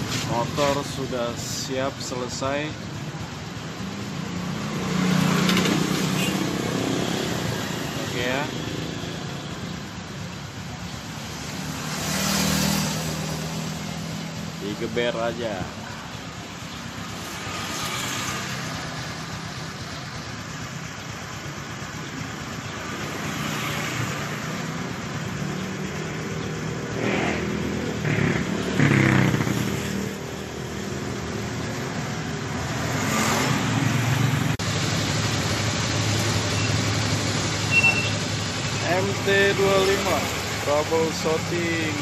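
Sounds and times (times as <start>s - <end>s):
motorcycle engine revving: 3.6s - 9.3s, 11.0s - 15.4s, 22.8s - 42.0s.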